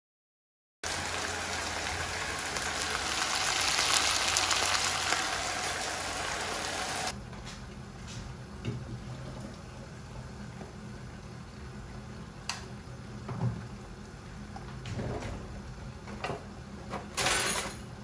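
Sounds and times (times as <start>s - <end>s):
meat sizzling in oil: 0.8s - 7.1s.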